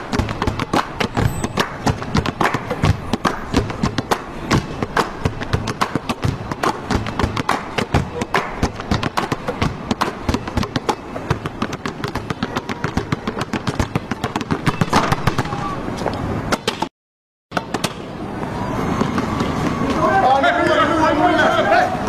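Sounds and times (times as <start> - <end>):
crowd hubbub: 0.0 - 16.8, 17.6 - 22.0
basketball bouncing on hardwood floor: 0.1 - 8.1, 8.7 - 15.0.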